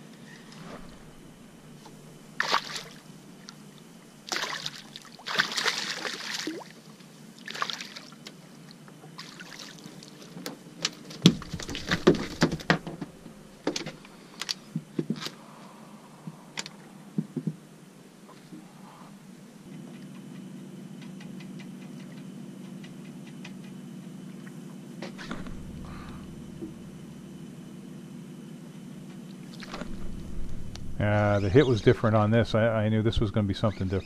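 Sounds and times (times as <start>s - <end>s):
fish flopping on deck: 1.8s - 3.6s, 4.2s - 6.8s, 9.2s - 14.1s
fish splashing in water: 2.4s - 3.6s, 4.2s - 8.2s, 9.1s - 10.2s, 11.3s - 12.6s.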